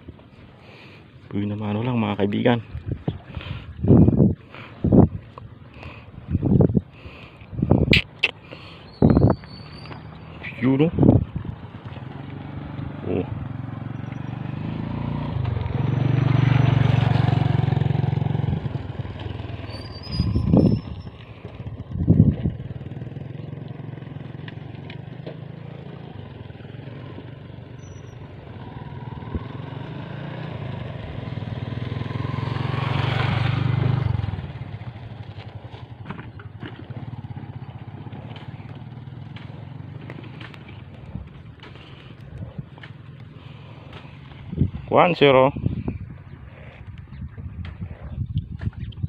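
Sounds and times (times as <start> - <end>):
vehicle engine passing: 9.6 - 45.6.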